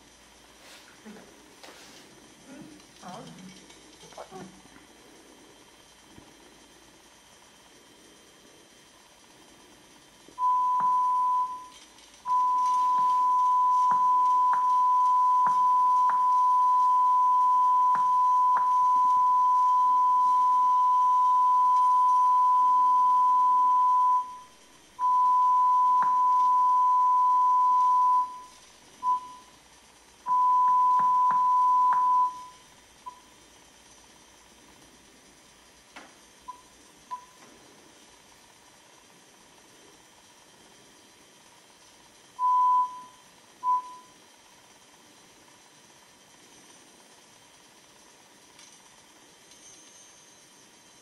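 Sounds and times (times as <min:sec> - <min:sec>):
steady high beep tone: 0:10.4 - 0:29.6, 0:30.3 - 0:33.3, 0:42.4 - 0:44.2.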